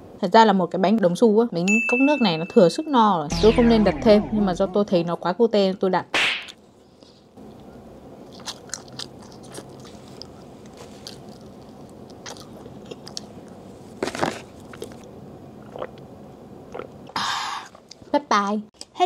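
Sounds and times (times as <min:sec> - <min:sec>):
biting clicks and mouth sounds: 0:08.2 - 0:13.7
chewing cake: 0:08.2 - 0:16.1, 0:16.7 - 0:18.1.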